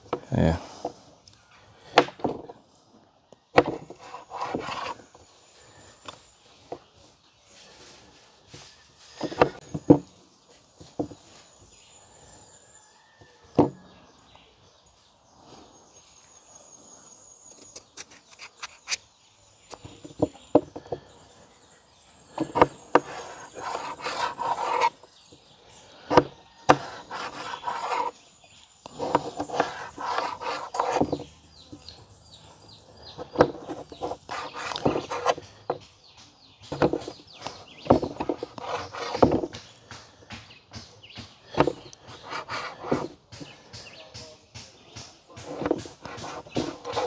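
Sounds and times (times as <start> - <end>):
knife rasping cutting strokes: 22.4 - 25.0, 26.1 - 28.2, 28.9 - 31.2, 33.3 - 35.4, 36.8 - 39.4, 41.5 - 43.1, 45.4 - 47.0.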